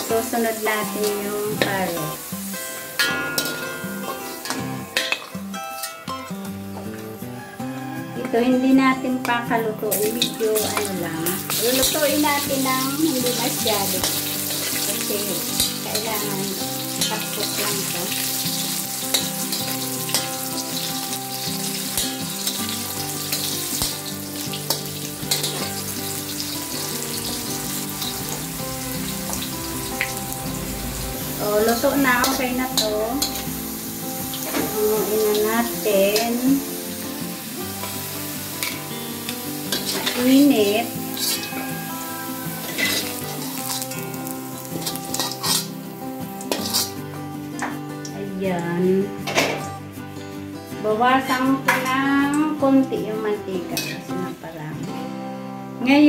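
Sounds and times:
food sizzling in hot oil: 0.0s - 5.9s, 9.8s - 48.2s
metal spatula scraping wok: 11.4s - 36.4s, 39.6s - 47.1s
metal spatula stirring: 16.8s - 26.5s, 39.7s - 43.8s, 44.7s - 45.8s, 46.5s - 47.0s.

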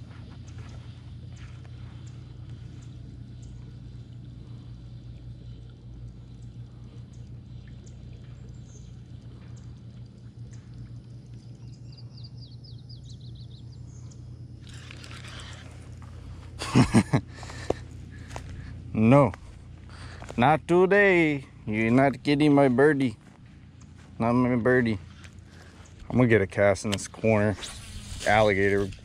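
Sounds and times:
steady low hum: 0.0s - 29.0s
bird chirping: 11.5s - 15.4s.

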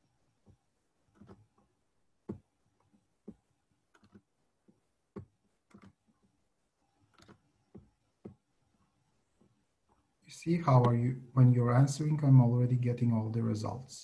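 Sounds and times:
computer keyboard and mouse clicks: 3.3s - 4.3s, 5.1s - 6.3s, 7.1s - 8.4s.

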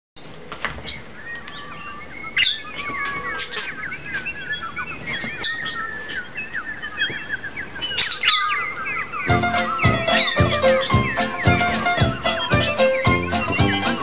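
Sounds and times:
budgerigar warbling: 9.2s - 14.0s.

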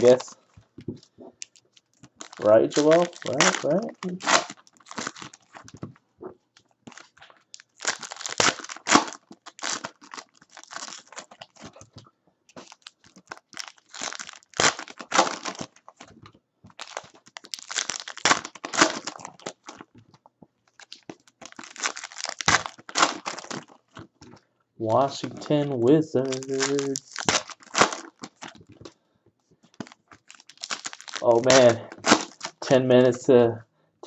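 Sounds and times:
foil packs crinkling and tearing: 0.0s - 0.4s, 1.4s - 5.8s, 6.9s - 11.9s, 12.5s - 16.1s, 16.7s - 19.9s, 20.7s - 24.1s, 25.0s - 29.0s, 29.7s - 32.7s.

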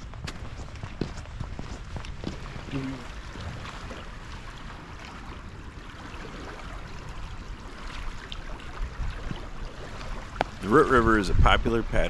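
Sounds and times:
wind rumbling on microphone: 0.0s - 12.0s
river water rushing: 2.2s - 11.2s.

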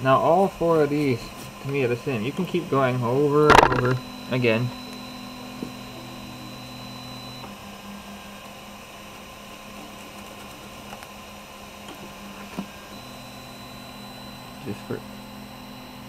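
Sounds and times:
printer fan hum: 0.0s - 16.0s
high whine: 2.8s - 7.5s.

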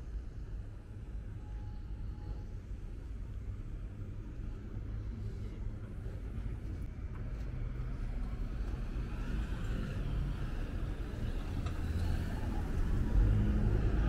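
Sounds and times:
road traffic rumble: 3.8s - 14.0s.

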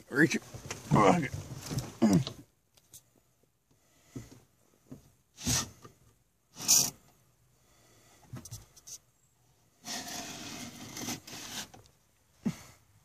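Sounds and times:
person breathing and grunting: 2.0s - 2.4s, 12.4s - 13.0s.

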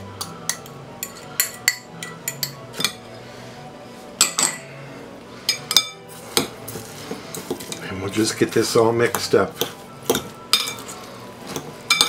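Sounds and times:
fork clinking against glass bowl: 9.1s - 12.0s.

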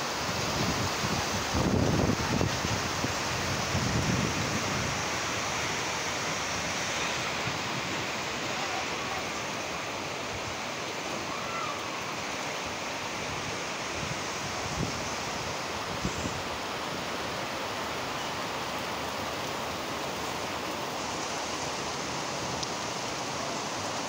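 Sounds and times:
rain on a metal roof: 0.0s - 24.0s
wind buffeting microphone: 0.3s - 5.8s.

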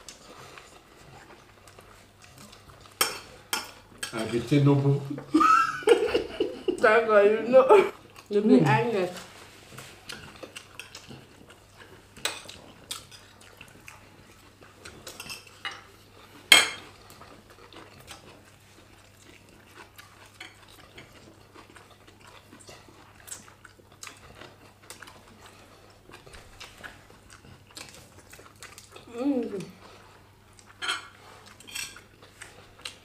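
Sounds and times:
cutlery clinking on plates: 16.5s - 16.9s, 30.8s - 32.0s.

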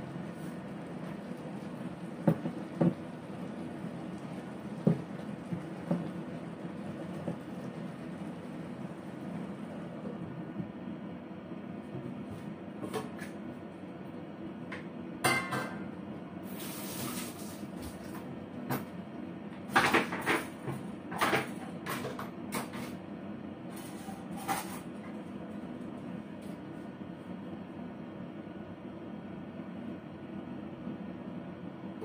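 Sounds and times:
kitchen knocks and clacks: 2.2s - 3.0s, 15.2s - 15.8s, 19.7s - 23.0s.

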